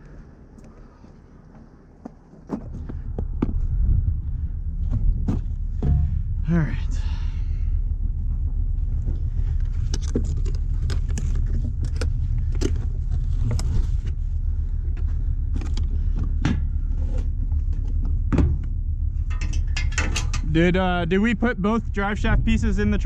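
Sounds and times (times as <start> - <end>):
diesel truck engine idling: 2.8 - 23.0
tow chain clinking: 19.2 - 20.6.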